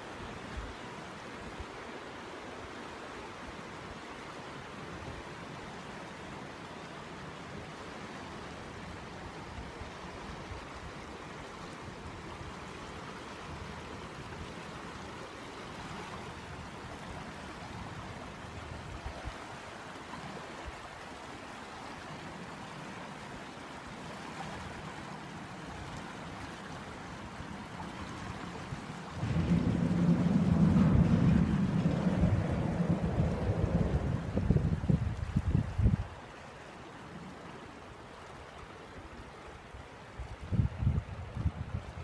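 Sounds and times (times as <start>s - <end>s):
river water lapping: 0.0s - 40.5s
loud low rumble: 29.2s - 34.8s.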